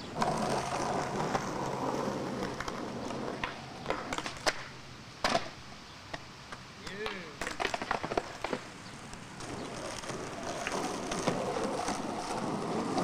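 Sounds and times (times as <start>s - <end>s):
skateboard wheels rolling on concrete: 0.0s - 13.0s
skateboard clacking on concrete ledge: 2.4s - 6.2s, 6.8s - 13.0s.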